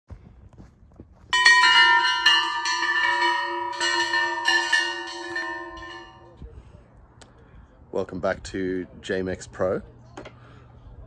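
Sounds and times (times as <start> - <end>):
metal tube chimes ringing: 1.4 - 6.4.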